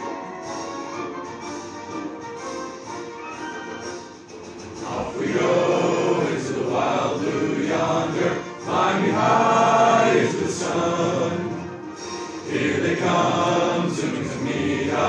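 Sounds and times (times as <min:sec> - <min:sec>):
instrumental music: 0:00.0 - 0:15.0
chorus singing: 0:04.6 - 0:15.0.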